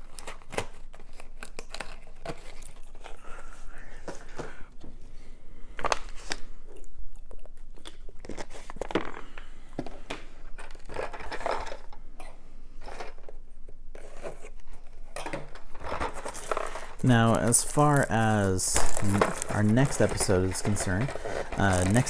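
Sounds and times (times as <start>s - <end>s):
packaging rustling and crinkling: 0.0s - 3.5s, 7.3s - 11.9s, 14.0s - 22.0s
plastic clicks and scrapes: 18.7s - 22.0s.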